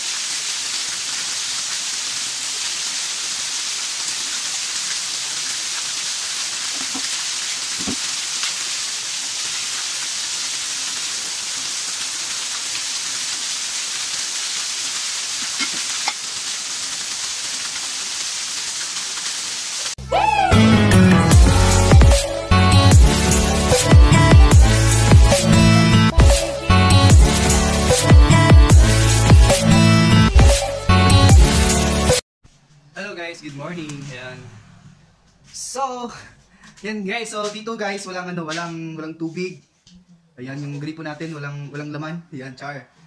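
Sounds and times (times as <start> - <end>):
water splashing on concrete: 0.0 - 20.0.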